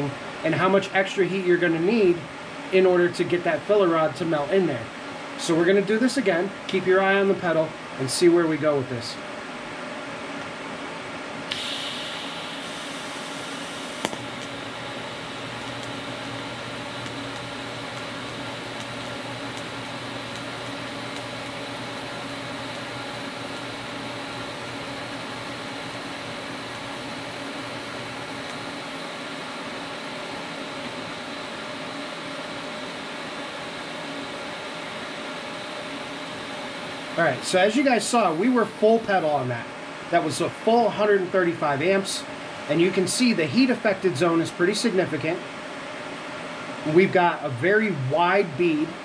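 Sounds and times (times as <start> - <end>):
fan whirring: 0.0 - 49.0
welding arc hissing and humming: 0.0 - 49.0
welding arc start buzzing hiss: 11.4 - 45.4.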